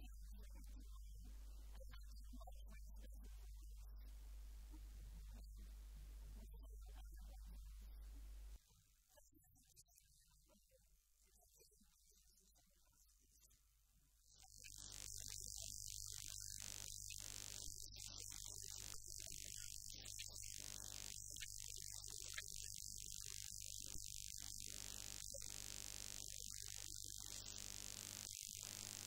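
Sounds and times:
low electrical hum: 0:00.0 - 0:08.6, 0:14.5 - 0:29.0.

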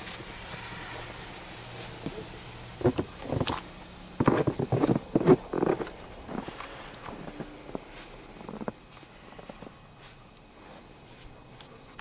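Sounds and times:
footsteps crunching in snow: 0:02.8 - 0:11.6.

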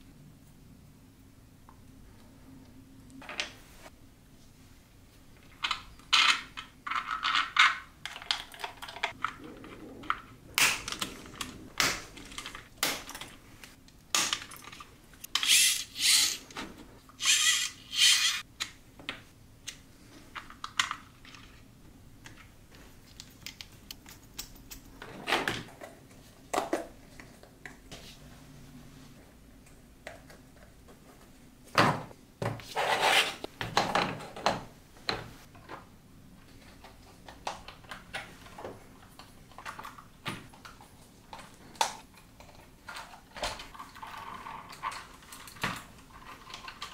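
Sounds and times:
plastic parts clicking and scraping: 0:05.4 - 0:18.8, 0:36.4 - 0:46.9.

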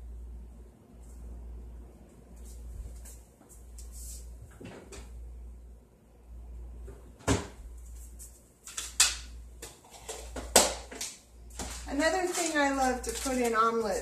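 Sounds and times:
steady low hum: 0:00.0 - 0:14.0
kitchen knocks and clatters: 0:08.7 - 0:14.0.

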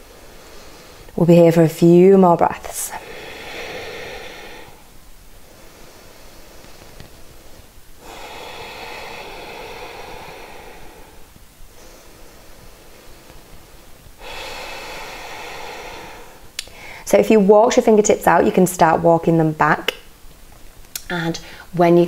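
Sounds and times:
person breathing deeply: 0:00.0 - 0:01.2, 0:02.7 - 0:17.2.

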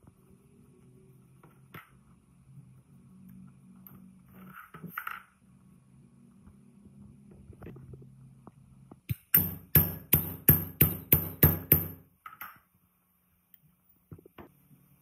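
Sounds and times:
metallic knocks on steel tube: 0:09.1 - 0:12.0.

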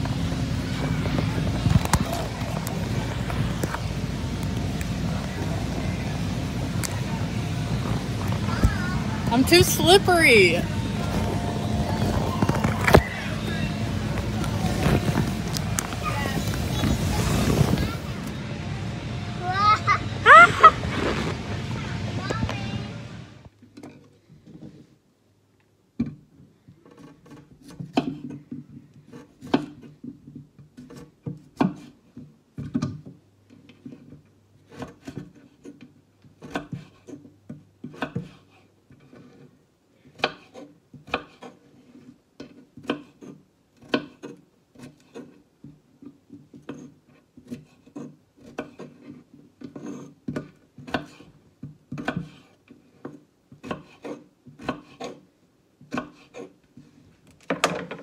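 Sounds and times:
knife cutting potatoes on board: 0:26.8 - 0:39.5, 0:40.1 - 0:57.0.

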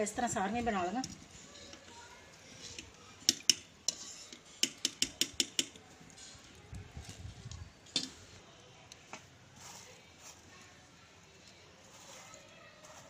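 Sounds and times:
skimmer tapping on metal rims: 0:02.7 - 0:05.8.

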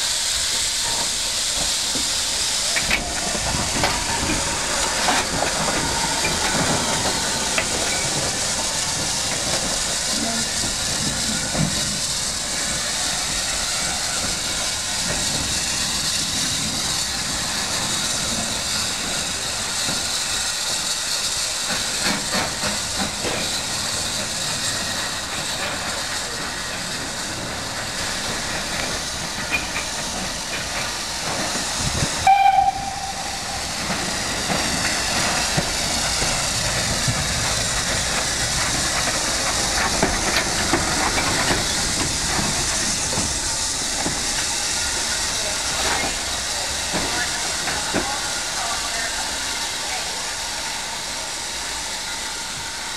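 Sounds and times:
steam hissing: 0:00.0 - 0:52.9
steam whistle toot: 0:32.2 - 0:33.9.

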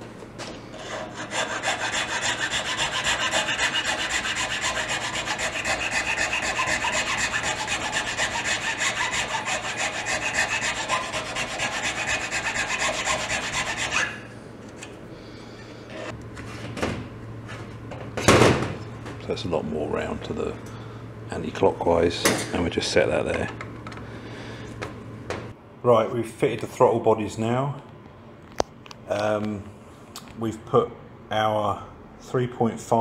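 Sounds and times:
hand file rasping on metal: 0:00.8 - 0:14.2.

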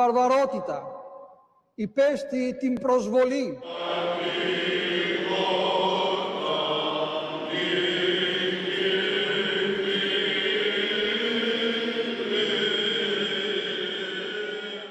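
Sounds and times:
men chanting unaccompanied: 0:03.6 - 0:14.9.

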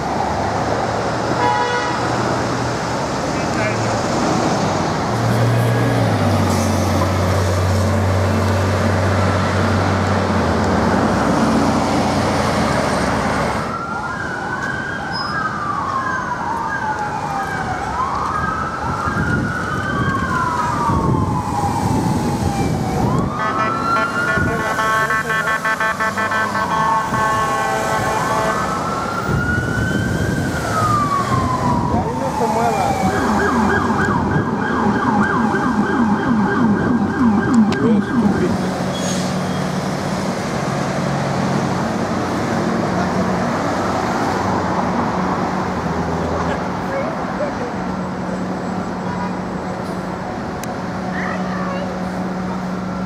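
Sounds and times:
street traffic: 0:00.0 - 0:53.0
electronic siren wailing: 0:13.7 - 0:38.7
pulsing siren tone: 0:15.0 - 0:38.7.

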